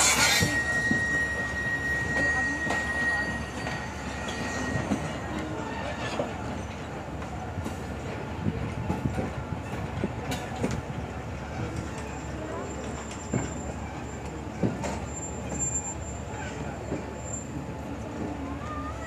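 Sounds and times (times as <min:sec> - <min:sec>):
high wheel squeal: 0:00.0 - 0:06.8, 0:11.6 - 0:18.1
train wheels rumbling and clicking: 0:00.0 - 0:18.8.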